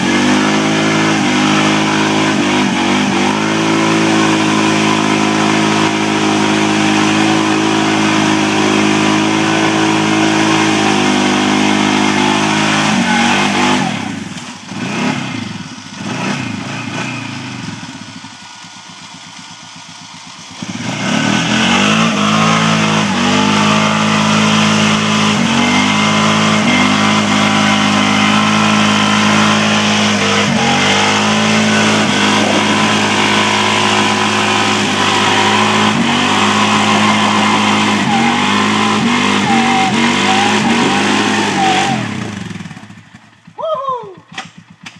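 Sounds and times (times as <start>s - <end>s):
quad churning through mud: 0.0s - 43.4s
atv engine revving: 0.0s - 44.9s.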